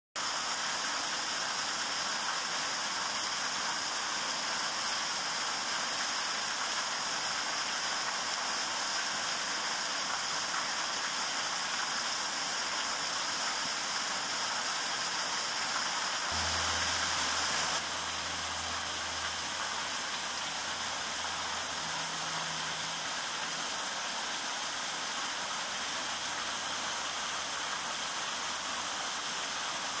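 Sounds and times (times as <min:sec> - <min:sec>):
steady hiss: 0:00.2 - 0:30.0
low hum: 0:16.3 - 0:23.6.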